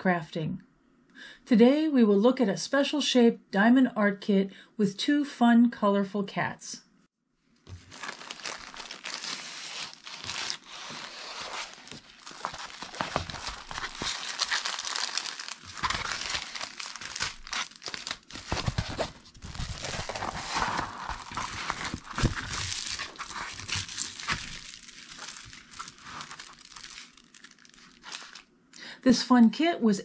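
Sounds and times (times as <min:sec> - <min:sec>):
plastic packaging crinkling: 0:07.6 - 0:28.5.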